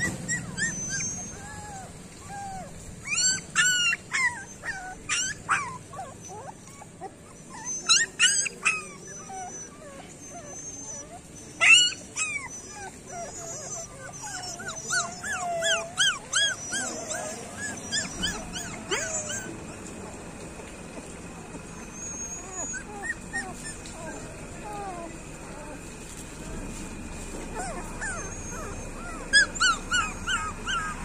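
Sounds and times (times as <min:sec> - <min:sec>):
puppy whimpering and squealing: 0:00.0 - 0:20.2, 0:21.2 - 0:25.9, 0:27.5 - 0:31.0.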